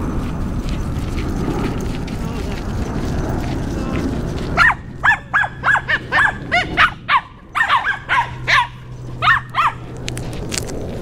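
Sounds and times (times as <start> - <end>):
dog yapping barks: 4.6 - 9.9.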